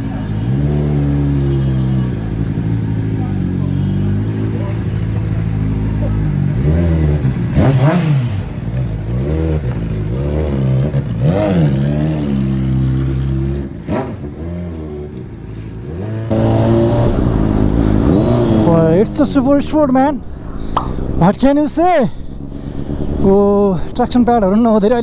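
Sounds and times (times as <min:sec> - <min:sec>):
motorcycle engine revving: 0:00.0 - 0:19.8.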